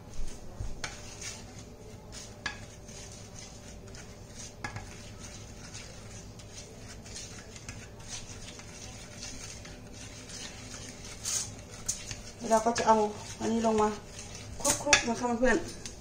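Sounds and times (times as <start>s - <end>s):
metal spoon scraping ceramic dish: 2.4s - 15.2s.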